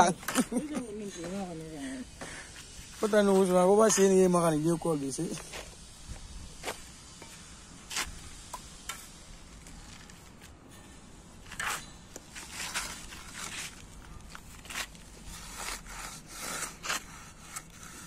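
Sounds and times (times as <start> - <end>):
trowel scraping wet mortar: 11.4 - 13.8, 14.4 - 18.0.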